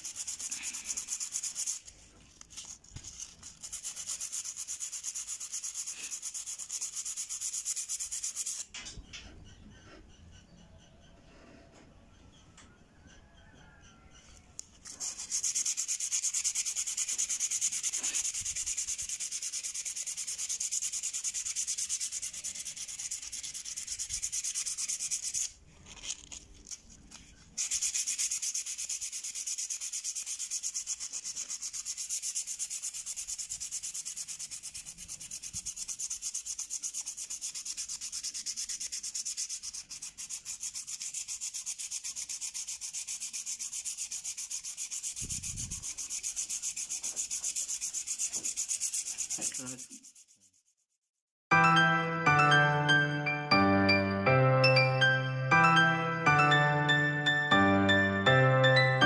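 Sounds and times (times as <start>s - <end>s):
sandpaper scraping steel blade: 0.0s - 8.7s, 14.6s - 50.9s.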